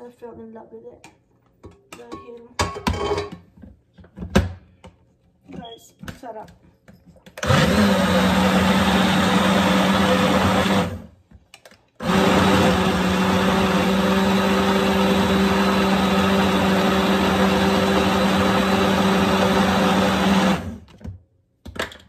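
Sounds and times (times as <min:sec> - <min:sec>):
blender motor grinding: 0:07.4 - 0:11.1, 0:12.0 - 0:20.9.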